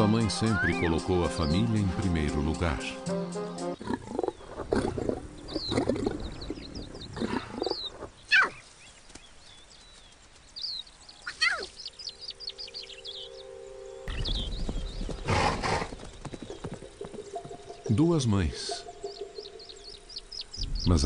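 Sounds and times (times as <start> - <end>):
small birds chirping: 0.0 - 21.0
lion cub calling: 3.8 - 8.6, 11.2 - 11.9.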